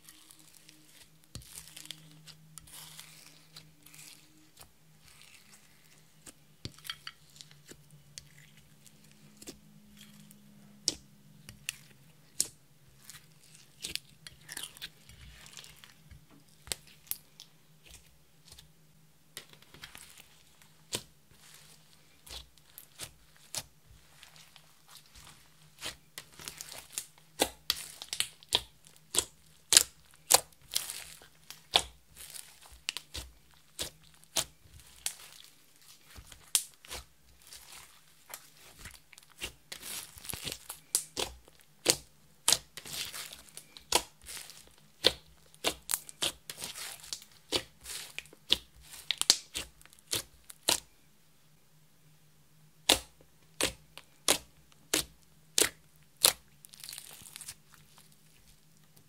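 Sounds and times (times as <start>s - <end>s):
slime clicking and crackling: 19.4s - 50.9s, 52.8s - 58.2s.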